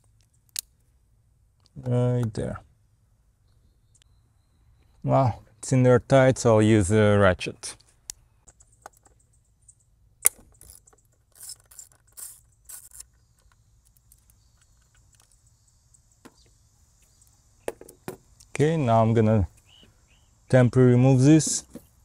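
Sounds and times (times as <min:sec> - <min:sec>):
ratchet clicking: 0:10.6 - 0:14.3.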